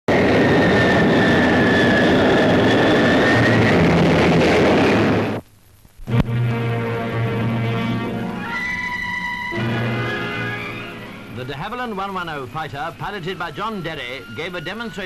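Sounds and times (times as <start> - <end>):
jet engine whine: 0.1 - 5.4, 6.2 - 15.0
music: 6.1 - 11.3.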